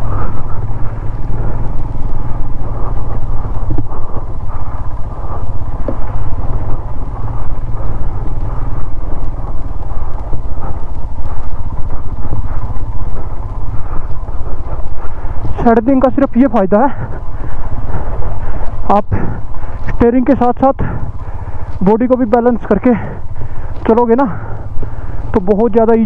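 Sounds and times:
faint ticks: 0.0 - 16.4
motorcycle engine droning: 0.0 - 26.0.

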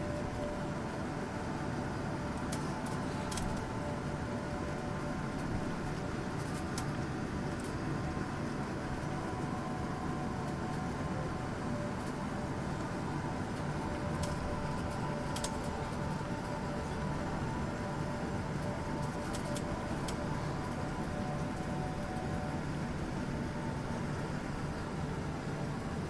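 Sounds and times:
jet engines whining: 0.0 - 26.0
low cabin rumble: 0.0 - 26.0.

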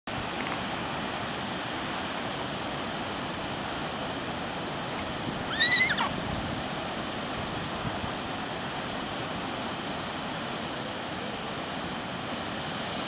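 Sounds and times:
wind noise: 2.6 - 10.8
rat squealing: 5.5 - 6.1.

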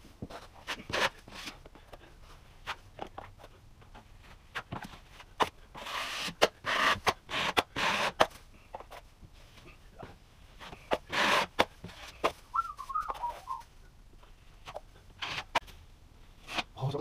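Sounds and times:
taping knife scraping: 0.6 - 1.6, 5.4 - 8.3, 10.6 - 12.3, 14.7 - 15.6, 16.4 - 16.7
wavering whistle: 12.5 - 13.7.

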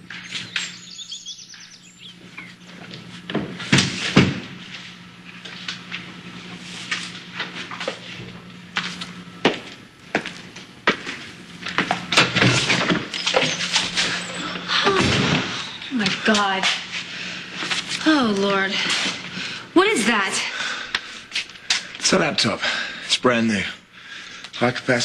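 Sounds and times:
steady low hum: 0.0 - 25.0
faint high chirps: 0.1 - 2.6
footsteps on hard floor: 7.7 - 12.0.

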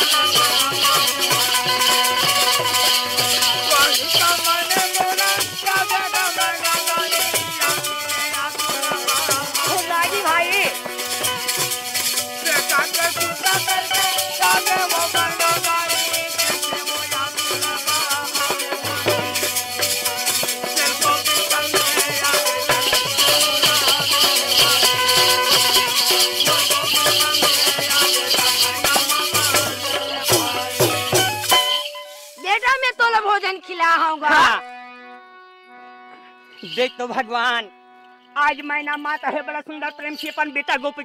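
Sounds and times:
jingling rattle: 0.0 - 32.7
tabla and drum beats: 0.0 - 34.7, 38.3 - 41.0
harmonium melody: 0.0 - 41.0.

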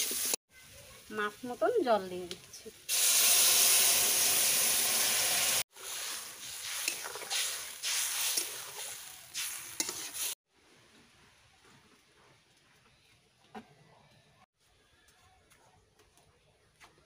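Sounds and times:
water sizzling in hot wok: 0.0 - 0.4, 1.0 - 10.4
metal spatula scraping wok: 5.8 - 10.4.

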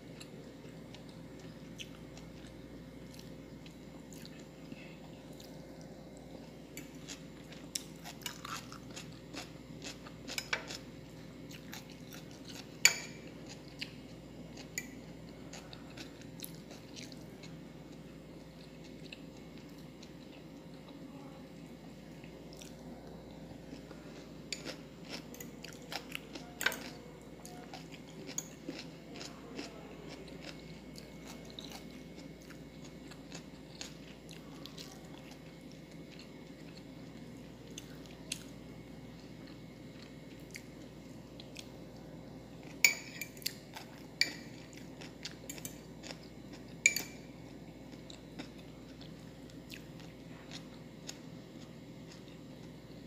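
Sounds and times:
chewing: 0.9 - 5.9, 6.7 - 10.9, 11.5 - 17.6, 22.2 - 38.6, 47.9 - 52.8.

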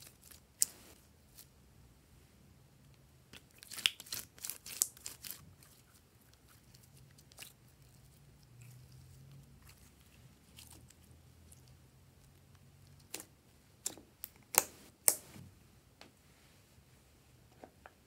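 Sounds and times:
slime crackling and squishing: 3.4 - 15.2.

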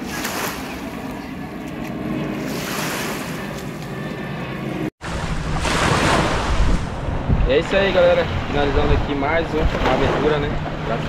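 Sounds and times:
wind buffeting microphone: 5.0 - 11.0.

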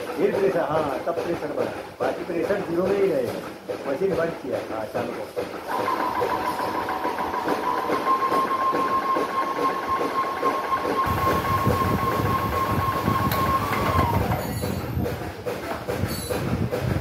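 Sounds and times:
pump clattering: 0.0 - 17.0
high motor whine: 9.8 - 14.4.

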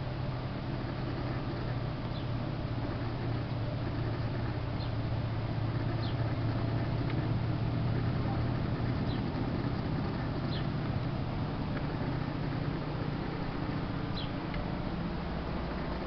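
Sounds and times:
small birds chirping: 0.7 - 16.0.

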